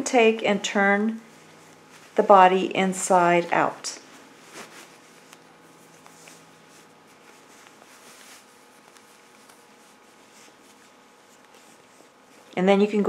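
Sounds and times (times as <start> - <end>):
yarn rustling while handled: 0.0 - 12.6.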